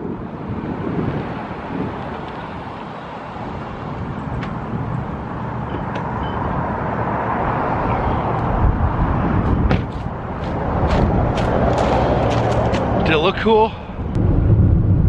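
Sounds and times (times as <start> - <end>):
car road and engine noise: 0.0 - 15.0
wind rushing over microphone: 0.0 - 15.0.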